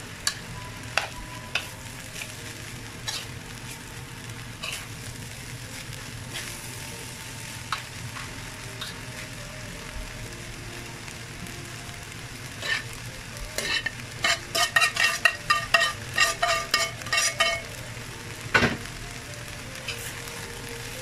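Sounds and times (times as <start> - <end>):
rice sizzling: 0.0 - 21.0
metal spatula scraping frying pan: 3.0 - 3.7, 4.6 - 4.9, 12.6 - 12.9, 13.6 - 17.7.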